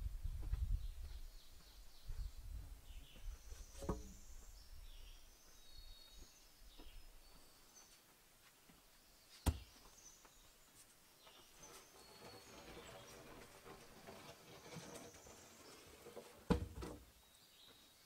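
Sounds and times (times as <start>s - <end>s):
small birds chirping: 0.5s - 16.3s, 17.1s - 18.0s
wooden log knocks: 9.5s - 9.7s.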